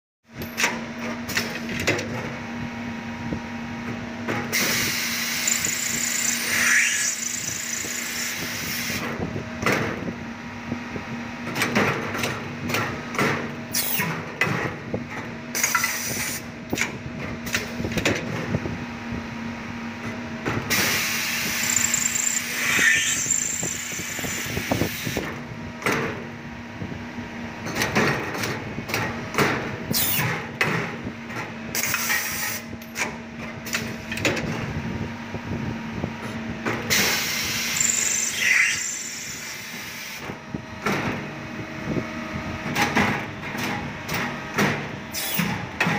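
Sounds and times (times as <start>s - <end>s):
lathe cutting with high whine: 5.1s - 9.0s, 21.1s - 24.7s, 37.2s - 40.1s.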